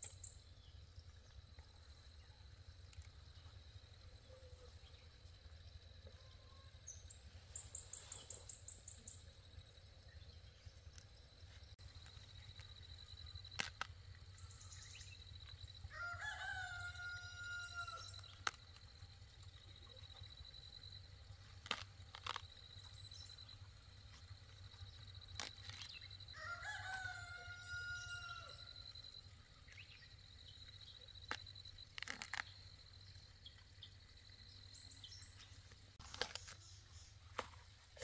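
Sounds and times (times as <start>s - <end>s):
rooster crowing: 15.9s - 18.1s, 26.4s - 28.7s.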